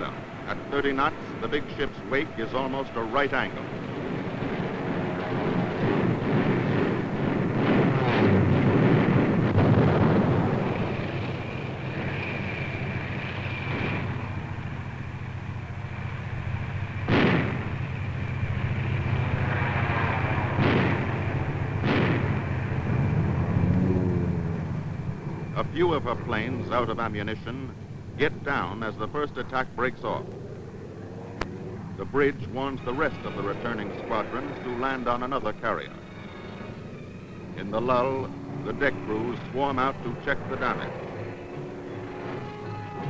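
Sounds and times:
dense rushing roar: 0:00.0 - 0:43.0
gunshots cracking: 0:05.4 - 0:10.8, 0:17.1 - 0:17.8, 0:20.5 - 0:22.6
thin high whine: 0:10.6 - 0:43.0.

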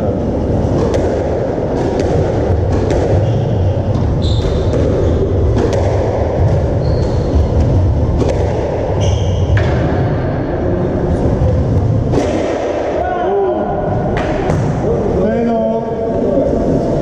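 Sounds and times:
low rumble of the hall: 0:00.0 - 0:17.0
squash ball smacking rackets and walls: 0:00.5 - 0:10.4, 0:11.7 - 0:13.1, 0:13.9 - 0:14.9
shoes squeaking on wooden floor: 0:06.8 - 0:07.6.

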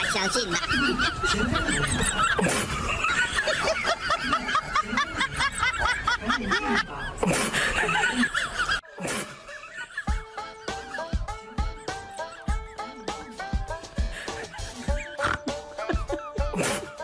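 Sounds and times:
high-pitched snickering laughter: 0:14.6 - 0:17.0.

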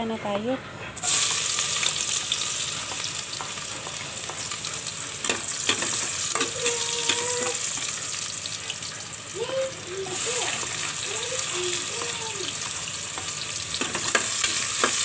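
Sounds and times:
garlic and onion sizzling in oil: 0:01.0 - 0:15.0
spatula clicking against pot: 0:05.2 - 0:07.6, 0:13.2 - 0:15.0.

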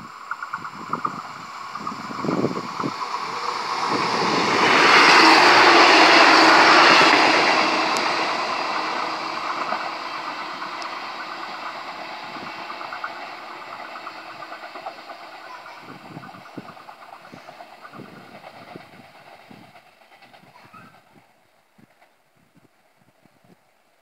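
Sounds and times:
diesel train passing: 0:00.0 - 0:24.0.

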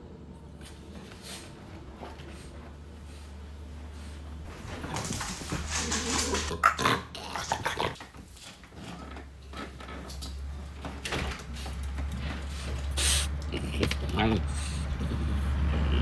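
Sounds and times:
dog snorting and grunting: 0:05.7 - 0:08.0, 0:13.0 - 0:16.0.

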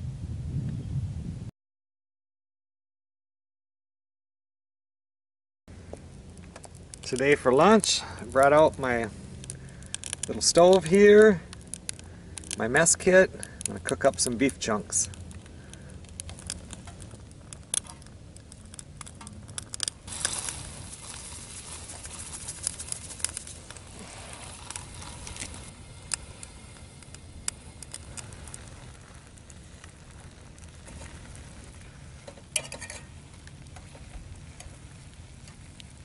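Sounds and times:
meat sizzling in a frying pan: 0:20.1 - 0:27.0.

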